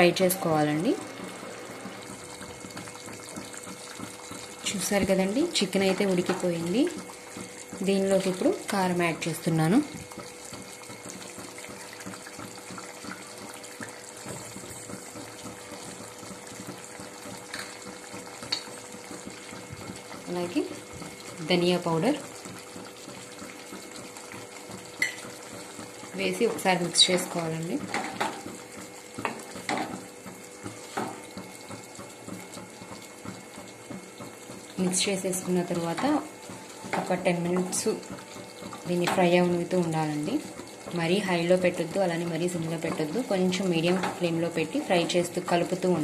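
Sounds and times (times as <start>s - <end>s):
chicken sizzling in oil: 0.0s - 46.0s.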